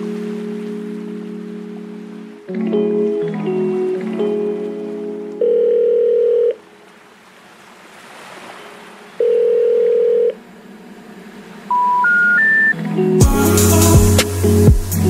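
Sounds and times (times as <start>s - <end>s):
electronic beep tones: 11.7s - 12.8s
faint hiss: 13.3s - 15.0s.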